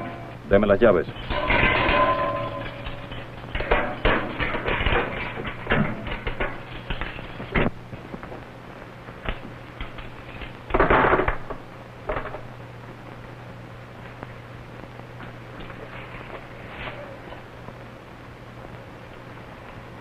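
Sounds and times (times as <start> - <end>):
low hum: 0.0 - 20.0
scraping rustle: 15.6 - 17.5.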